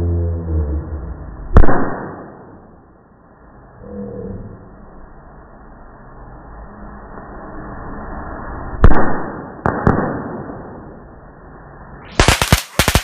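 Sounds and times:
sharp crisp cracks: 0:01.6 - 0:02.6, 0:08.8 - 0:10.8, 0:12.1 - 0:13.0
slowed firework booms: 0:08.8 - 0:11.0.

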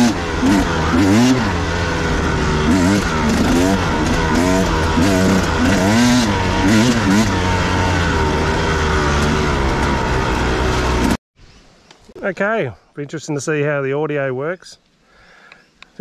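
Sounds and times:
dirt bike engine revving: 0:00.0 - 0:11.2
low hum and rushing noise: 0:00.0 - 0:11.2.

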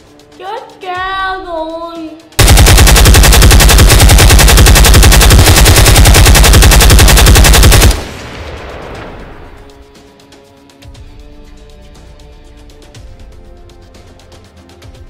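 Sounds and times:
machine-gun fire: 0:02.4 - 0:09.0.

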